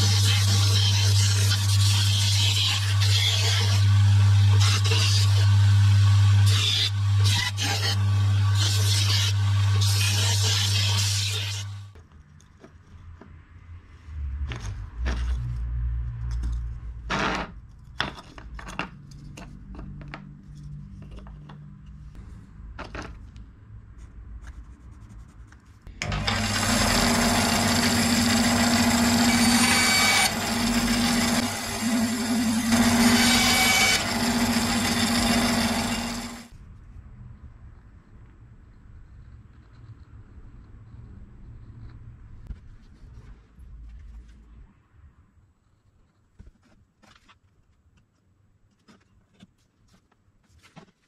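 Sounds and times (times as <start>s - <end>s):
power tool on wood: 26.0s - 36.5s.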